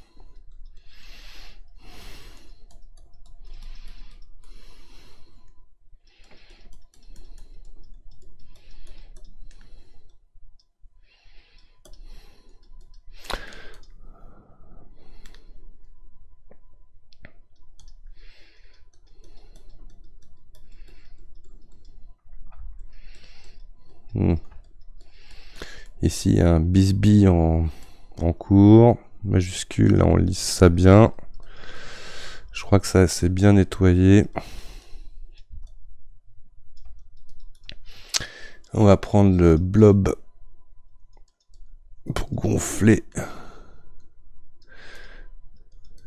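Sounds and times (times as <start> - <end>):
computer mouse clicks: 0.0 - 10.7, 11.3 - 14.0, 15.0 - 26.0, 34.4 - 35.9, 36.7 - 38.8, 41.0 - 42.3, 44.0 - 46.0.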